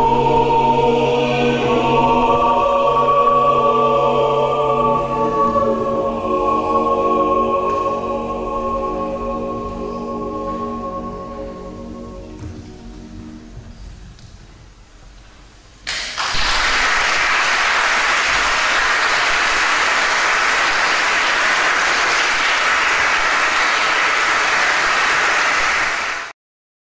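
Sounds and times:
choir singing final chord: 0.0s - 13.8s, 16.2s - 26.3s
audience applause: 15.9s - 26.3s.

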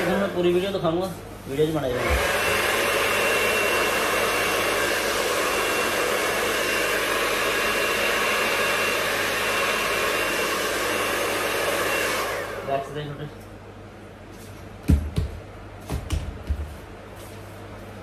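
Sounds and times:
hair dryer blowing: 0.0s - 13.3s.

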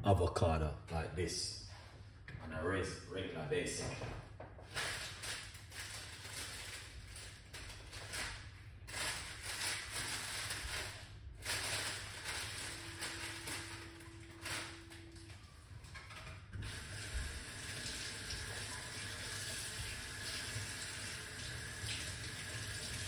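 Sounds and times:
kitchen tap running into sink: 16.0s - 23.0s.

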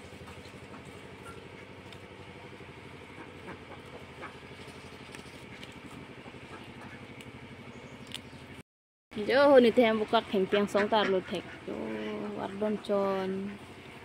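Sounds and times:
small engine running: 0.0s - 8.6s, 9.2s - 14.0s.

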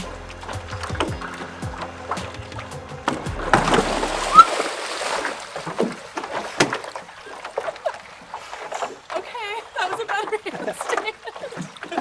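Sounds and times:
splash into water: 0.0s - 9.3s
water sloshing: 0.0s - 12.0s.

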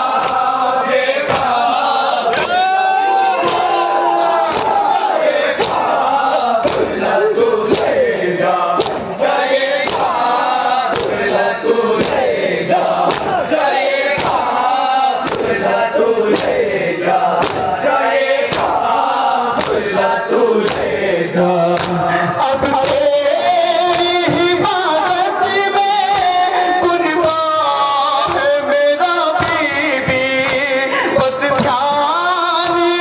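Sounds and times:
chest beating in unison: 0.0s - 33.0s
crowd of men chanting: 0.0s - 33.0s
man chanting: 19.8s - 33.0s.

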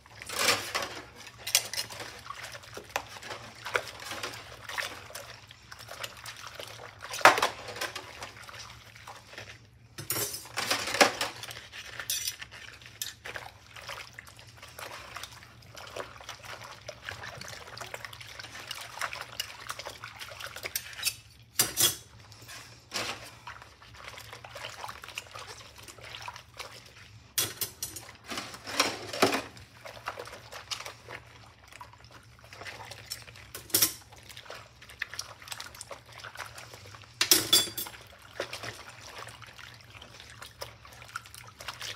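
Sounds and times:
water sloshing and splashing: 0.0s - 41.9s
metal utensils clinking: 10.0s - 12.4s, 20.8s - 22.1s, 27.4s - 29.5s, 33.5s - 34.0s, 37.2s - 38.0s.

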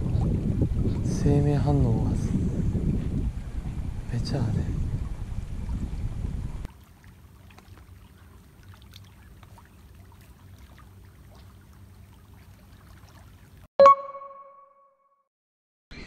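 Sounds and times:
low steady rumble: 0.0s - 6.7s
water trickling and splashing: 0.0s - 13.7s.

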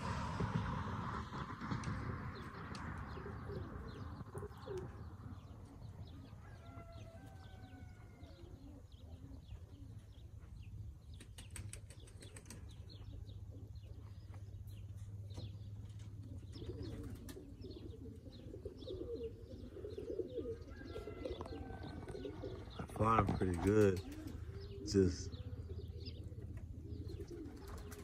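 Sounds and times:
pigeons cooing: 0.0s - 28.0s
pigeon wings flapping: 11.2s - 12.8s, 27.2s - 28.0s.

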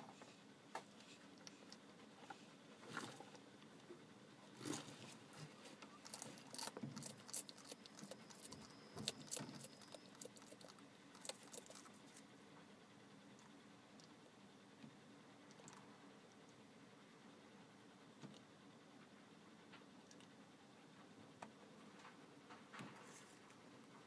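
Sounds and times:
lizard snapping up insects: 6.0s - 12.2s.

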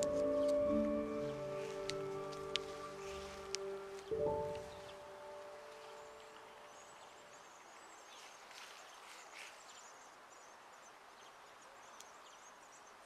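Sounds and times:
distant birds twittering: 0.0s - 13.0s
soft rustles: 1.3s - 6.7s, 8.1s - 10.1s.

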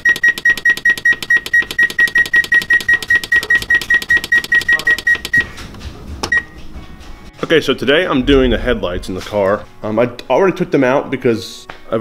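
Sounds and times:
oven control panel beeping: 0.0s - 5.6s.

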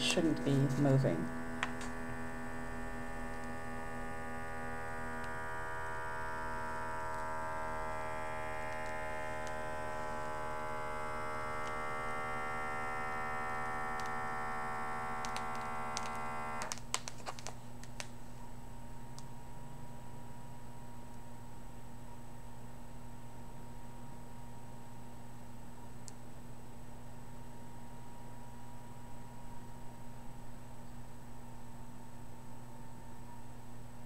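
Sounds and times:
small air pump running: 0.9s - 16.8s.

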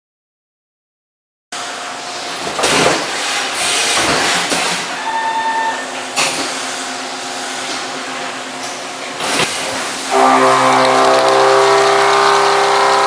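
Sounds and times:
machine hum: 9.7s - 13.0s
machine whine: 10.0s - 13.0s.

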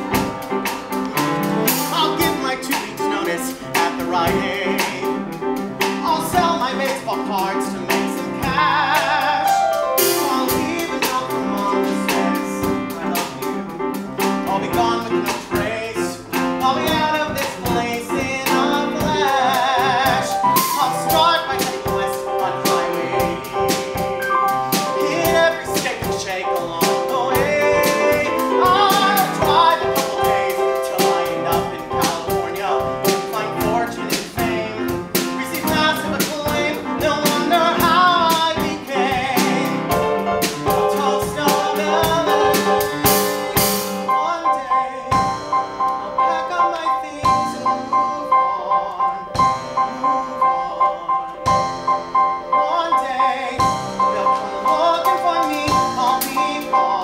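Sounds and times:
drum kit cymbals: 0.0s - 15.7s, 16.4s - 44.4s
grand piano: 0.0s - 57.0s
man singing with vibrato: 1.6s - 57.0s.

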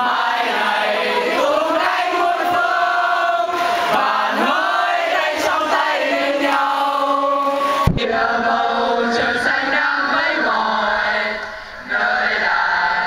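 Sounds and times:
crowd singing in unison: 0.0s - 13.0s
short thump: 7.8s - 8.1s.

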